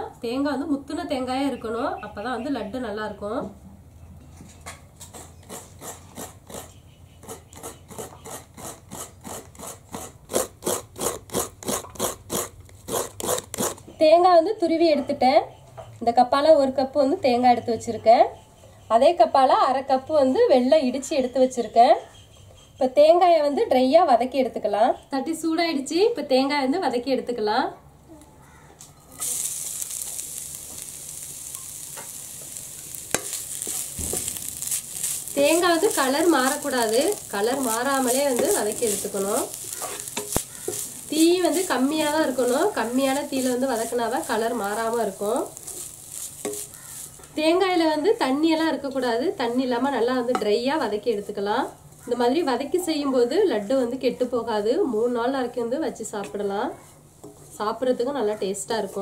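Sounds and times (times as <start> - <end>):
coconut being grated by hand: 5.1 - 13.8, 30.7 - 47.3
wooden spatula scraping a pan: 29.2 - 48.3.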